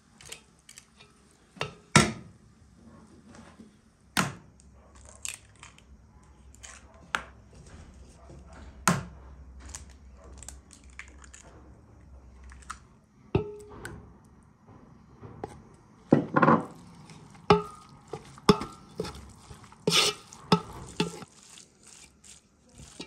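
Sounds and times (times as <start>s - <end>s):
spoon knocking against pot: 13.4s - 13.9s, 15.4s - 21.3s
wooden spoon stirring in metal pot: 15.1s - 23.0s.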